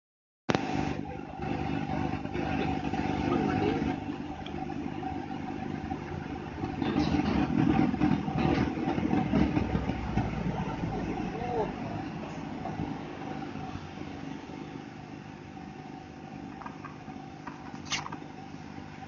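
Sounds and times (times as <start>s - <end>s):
constant whine: 0.5s - 19.0s
road noise: 1.4s - 15.1s
bus engine rumble: 5.0s - 14.0s.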